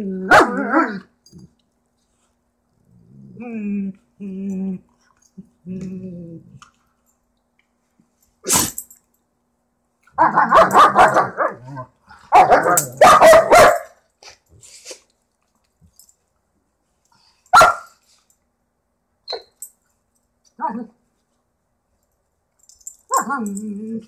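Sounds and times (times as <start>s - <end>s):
dogs snarling and barking: 0.0s - 1.5s, 10.1s - 14.4s
dog growling: 2.9s - 4.8s.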